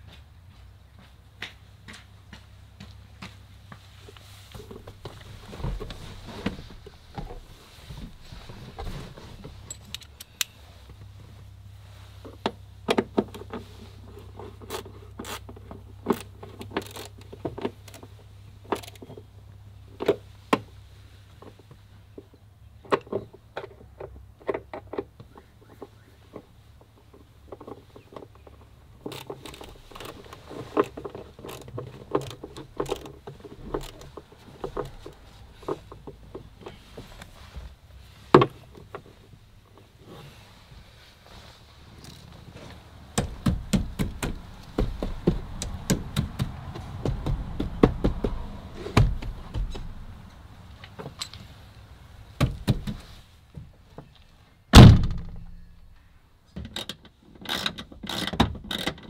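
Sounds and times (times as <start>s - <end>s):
clicks and knocks on plastic trim: 43.2s - 50.0s.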